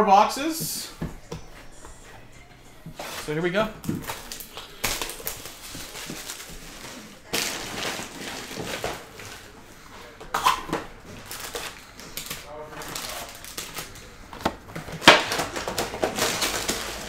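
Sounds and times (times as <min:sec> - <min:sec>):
plastic shrink wrap crinkling and tearing: 0:04.0 - 0:09.6, 0:10.4 - 0:14.1, 0:15.0 - 0:17.0.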